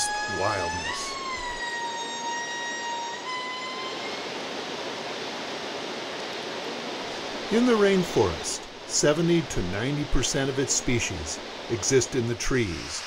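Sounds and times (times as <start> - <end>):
lemur wailing call: 0.0 - 4.3.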